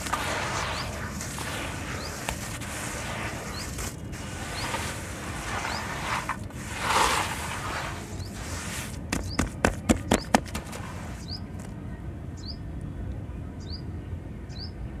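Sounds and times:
bird chirping: 9.1 - 9.5, 11.2 - 11.5, 12.4 - 12.6, 14.5 - 14.8.

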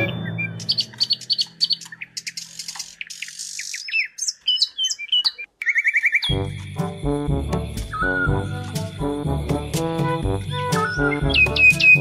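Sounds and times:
birds chirping: 0.0 - 12.0
held music chord: 6.3 - 12.0.

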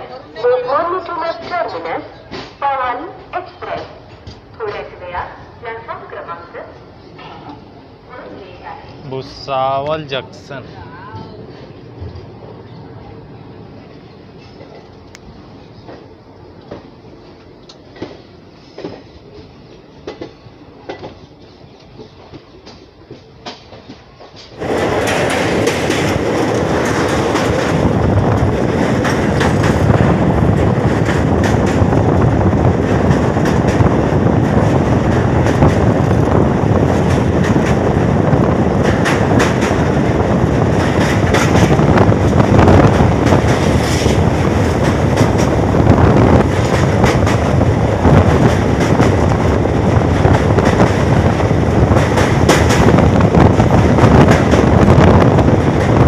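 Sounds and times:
train wheels clacking over rails: 15.8 - 56.0.

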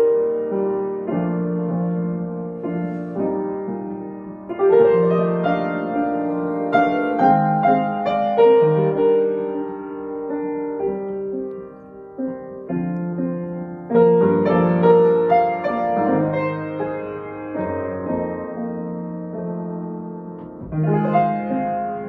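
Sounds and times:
slow solo piano: 0.0 - 22.0.

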